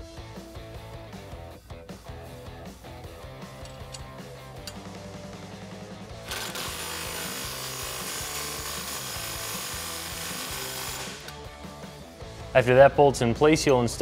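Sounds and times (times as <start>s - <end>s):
impact wrench hammering: 3.6s - 4.9s, 6.3s - 11.4s.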